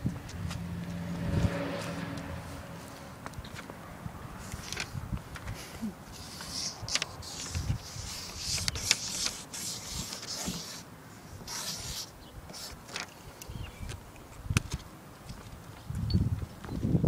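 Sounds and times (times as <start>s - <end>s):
scratchy writing strokes: 6.1s - 12.9s.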